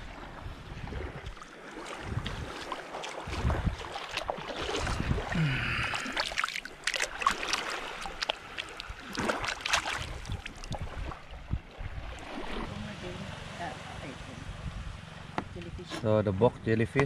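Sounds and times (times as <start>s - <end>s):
wind rumble on microphone: 0.0s - 5.9s, 10.0s - 17.0s
seawater splashing and sloshing: 0.0s - 15.4s.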